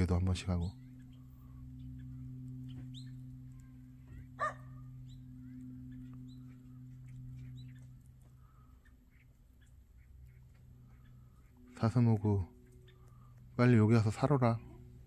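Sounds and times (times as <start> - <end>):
bird chirps: 0.0 - 15.0
steady low hum: 0.0 - 15.0
dog barking: 4.4 - 4.8.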